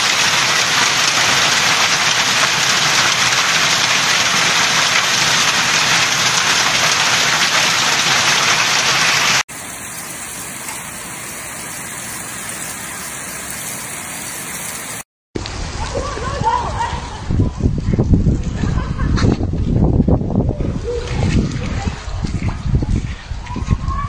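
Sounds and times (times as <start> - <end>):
heavy hail and rain pelting: 0.0 - 15.0.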